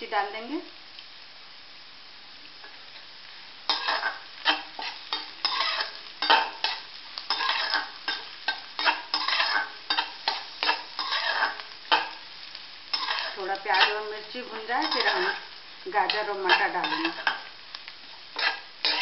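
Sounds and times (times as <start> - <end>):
onions sizzling in oil: 0.0 - 19.0
metal spatula scraping pan: 3.7 - 12.2, 12.9 - 17.5, 18.4 - 19.0.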